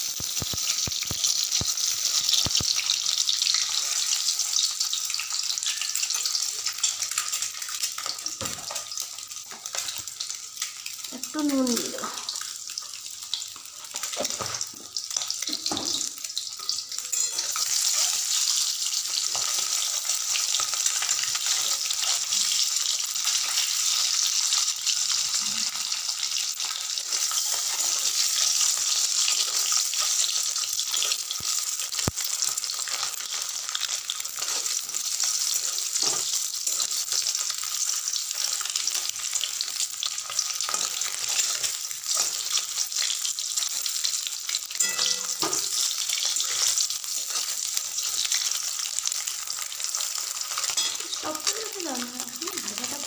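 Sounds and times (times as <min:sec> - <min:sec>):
eggs sizzling in oil: 0:00.0 - 0:53.0
metal spatula knocking and scraping: 0:44.8 - 0:45.8.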